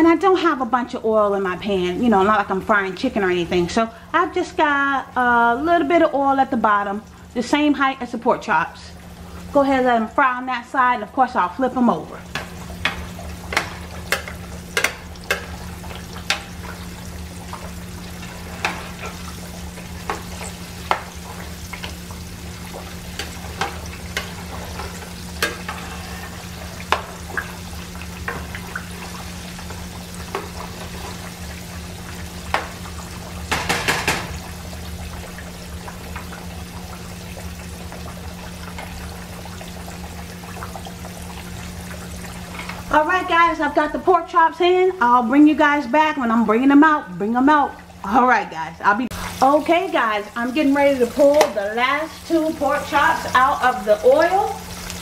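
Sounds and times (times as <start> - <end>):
meat sizzling in oil: 4.6 - 55.0
plastic spoon tapping pan: 12.4 - 15.5.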